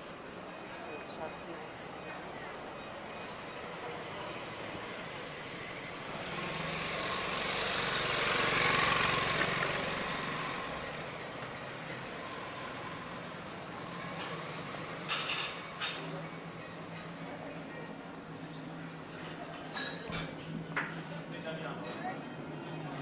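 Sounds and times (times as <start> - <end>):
vehicle passing by: 4.0 - 15.0.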